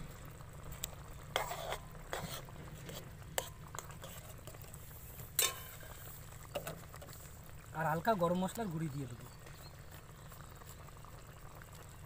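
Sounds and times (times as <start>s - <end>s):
spatula scraping metal pan: 1.3s - 6.1s.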